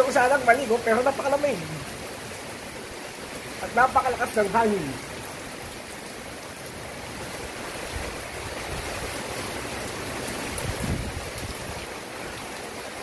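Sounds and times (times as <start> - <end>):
heavy rain pouring: 0.0 - 13.0
gusting wind: 5.0 - 13.0.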